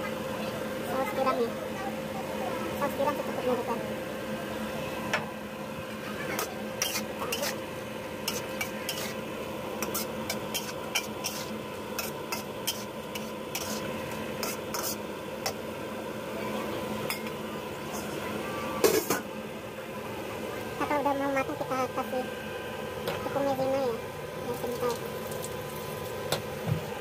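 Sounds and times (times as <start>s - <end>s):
metal spatula scraping a wok: 6.3s - 7.6s, 8.2s - 9.2s, 9.8s - 15.0s.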